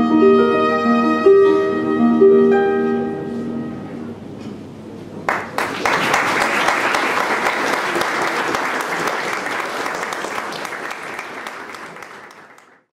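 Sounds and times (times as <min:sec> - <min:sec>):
audience applauding: 0:05.3 - 0:12.9.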